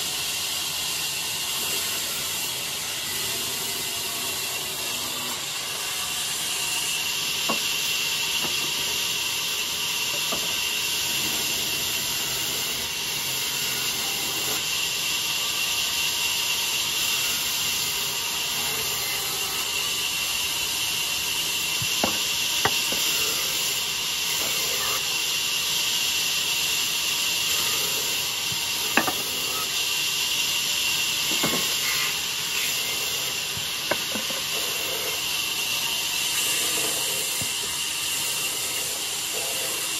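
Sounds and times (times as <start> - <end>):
band saw blade hissing in wood: 0.0 - 39.9.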